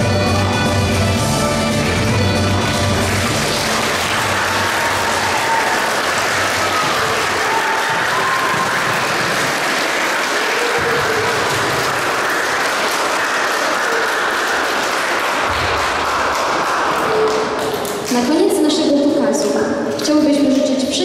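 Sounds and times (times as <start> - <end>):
audience applauding: 2.4 - 18.4.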